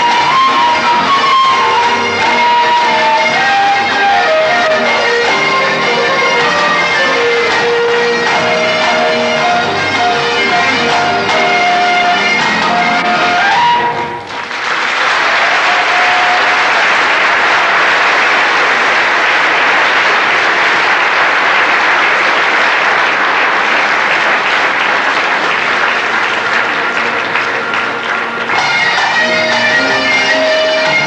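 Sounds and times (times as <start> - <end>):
live folk music: 0.0 - 31.0
audience applause: 13.2 - 31.0.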